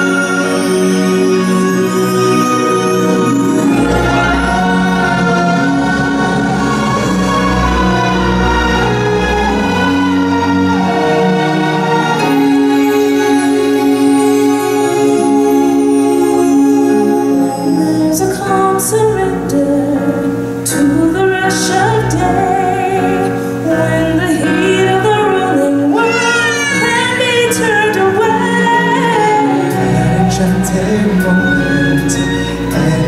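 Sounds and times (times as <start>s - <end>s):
stage-show music: 0.0s - 33.0s.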